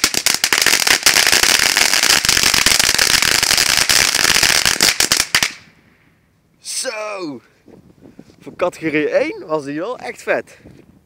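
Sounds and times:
firework fountain crackling: 0.0 - 5.7.

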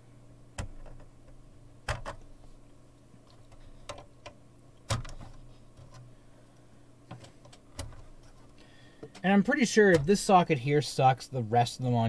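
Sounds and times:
steady low hum: 0.0 - 12.0.

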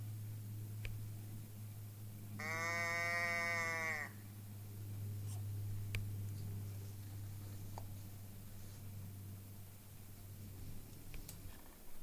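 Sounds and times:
deer bleat: 2.4 - 4.2.

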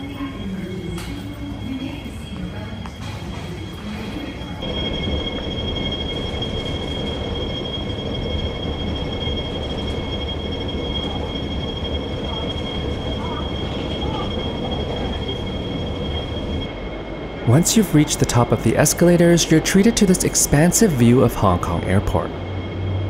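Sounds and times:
escalator mechanical hum: 0.0 - 23.0
high steady whine: 4.6 - 23.0.

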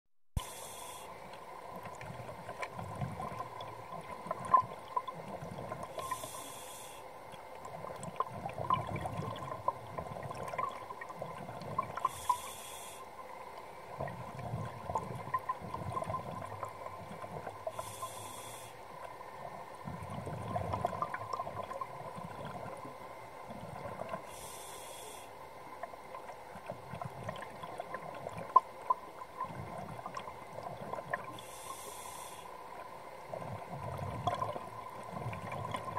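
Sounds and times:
regulator inhalation hiss: 0.4 - 1.2, 6.0 - 7.1, 12.0 - 13.1, 17.7 - 18.8, 24.2 - 25.3, 31.4 - 32.6
faint steady tone: 0.4 - 35.9
exhaled bubbles rumbling: 1.3 - 6.3, 7.3 - 12.4, 13.8 - 17.9, 19.0 - 24.3, 25.7 - 31.4, 33.2 - 35.9.

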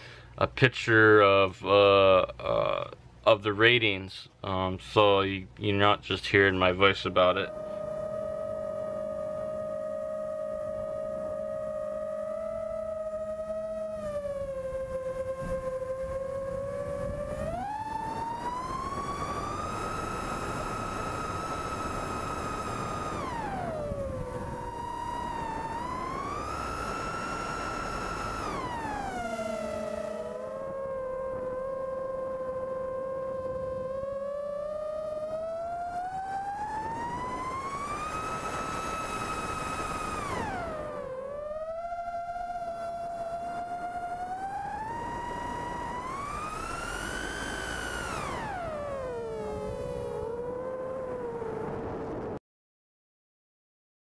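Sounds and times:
drone motors whining: 5.0 - 52.4.

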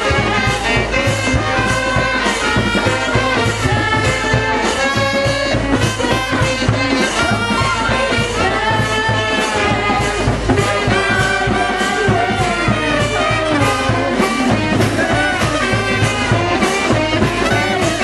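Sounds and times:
saxophones: 0.0 - 18.0
snare and bass drums: 0.0 - 18.0
trombones: 0.0 - 18.0
trumpet: 0.0 - 18.0.

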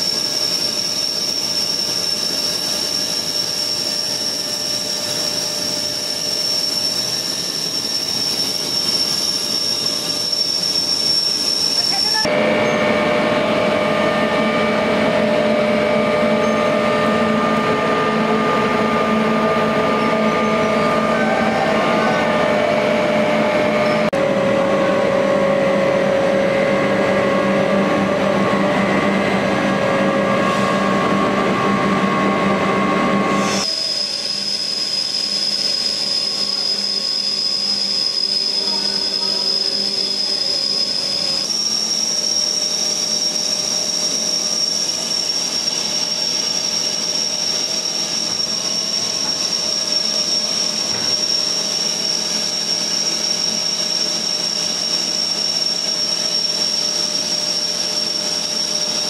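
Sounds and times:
high-pitched machine whine: 0.0 - 59.0
machinery running: 0.0 - 59.0.

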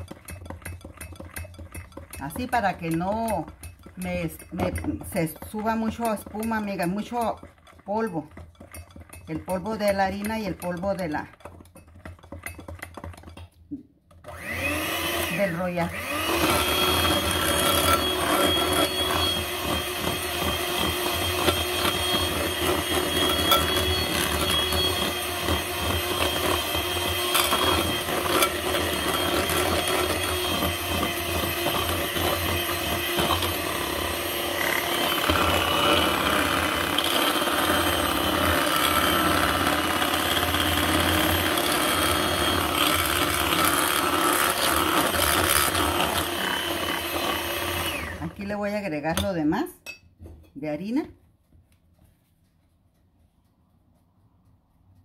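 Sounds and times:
electric hand mixer running: 0.0 - 11.3, 14.1 - 48.9.

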